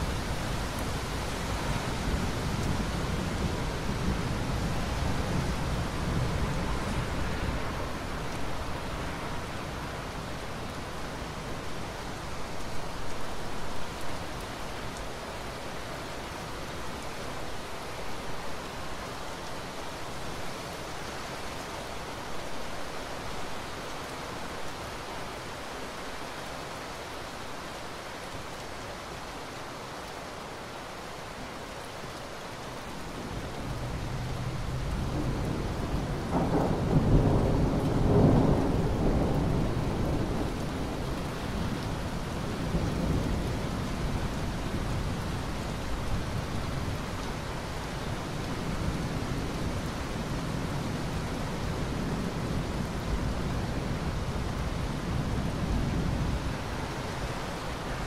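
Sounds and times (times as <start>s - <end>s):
steady rain falling: 0.0s - 58.0s
low rumble of thunder: 33.2s - 47.4s.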